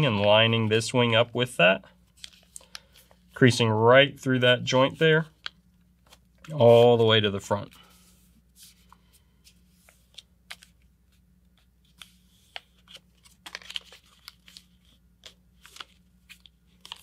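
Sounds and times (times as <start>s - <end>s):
paper crinkling and rustling: 2.1s - 3.3s, 11.6s - 17.0s.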